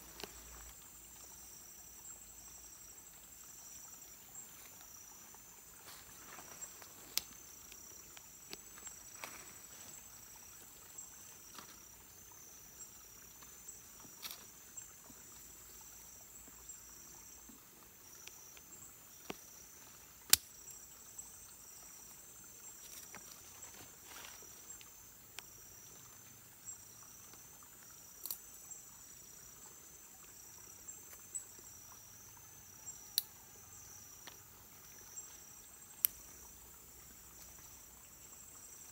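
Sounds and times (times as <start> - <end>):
high-pitched insect chorus: 0.0 - 38.9
sharp clicks and snaps of sticks: 7.1 - 9.4, 20.2 - 20.6, 28.2 - 28.4.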